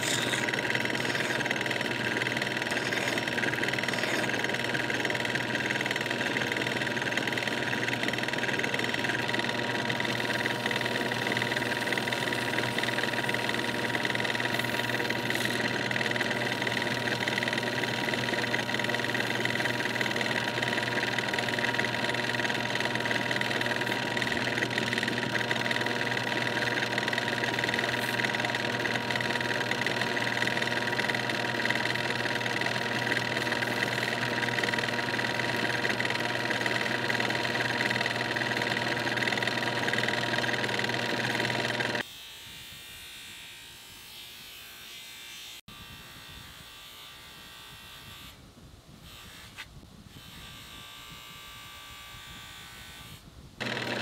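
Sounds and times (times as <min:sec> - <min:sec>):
abrasive paper on spinning part: 0:00.0 - 0:42.0
metal lathe humming and whining: 0:00.0 - 0:42.0, 0:53.6 - 0:54.0
bench grinder running: 0:00.0 - 0:42.1, 0:50.2 - 0:54.0.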